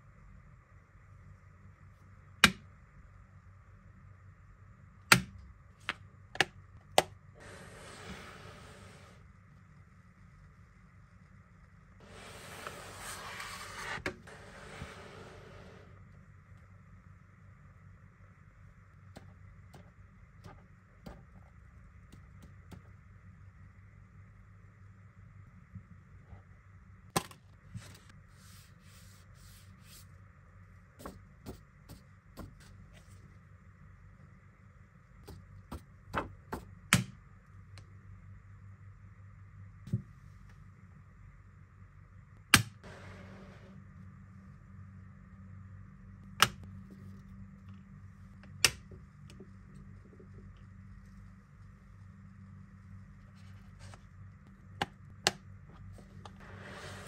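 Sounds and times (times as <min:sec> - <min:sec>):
steady low hum: 0:00.0 - 0:57.0
soft sliding rustle: 0:07.4 - 0:09.2, 0:12.0 - 0:16.0, 0:27.8 - 0:30.2, 0:56.0 - 0:57.0.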